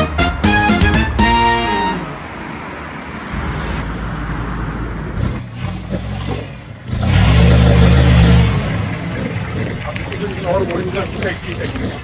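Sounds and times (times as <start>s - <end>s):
vehicle engine running: 4.9s - 12.0s.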